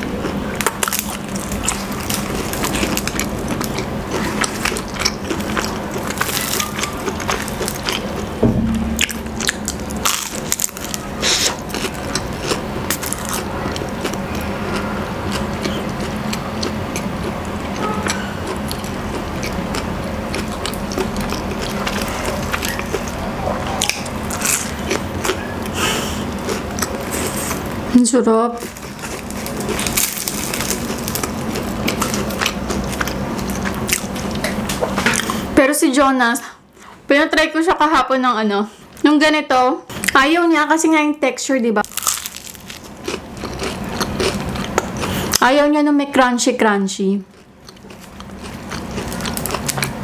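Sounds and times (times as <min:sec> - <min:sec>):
pastry crust crunching while chewed: 0:00.0 - 0:08.3, 0:10.0 - 0:23.2, 0:23.8 - 0:27.8, 0:28.6 - 0:35.5, 0:41.8 - 0:45.5, 0:47.3 - 0:50.0
pastry crust crackling: 0:00.0 - 0:08.4, 0:28.6 - 0:34.7, 0:41.8 - 0:45.4.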